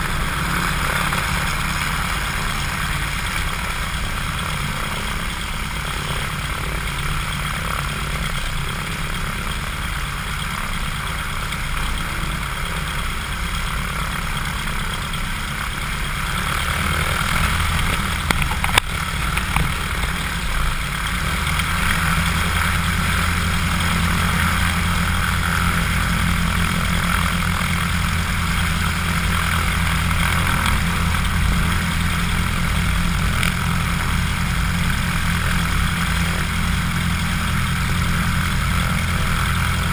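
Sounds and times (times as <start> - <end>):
propeller aircraft engine running: 0.0 - 39.9.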